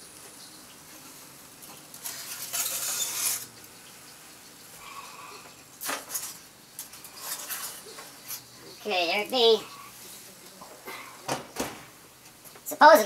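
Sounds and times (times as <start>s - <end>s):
tray scraping over oven rack: 2.0s - 3.6s.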